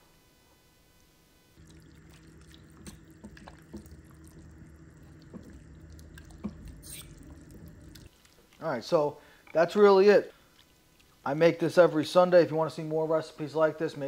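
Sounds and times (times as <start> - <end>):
steady low hum: 1.0 - 11.8
wet squelching stirring: 1.6 - 11.9.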